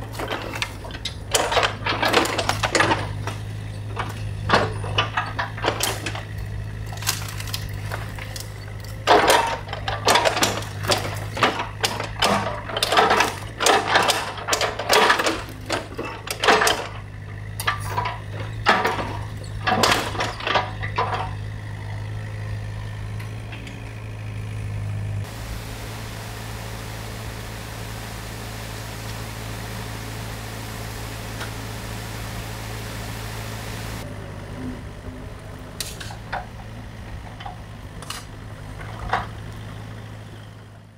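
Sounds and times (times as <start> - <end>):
excavator diesel engine hum: 0.0 - 40.9
steady hiss: 25.3 - 34.0.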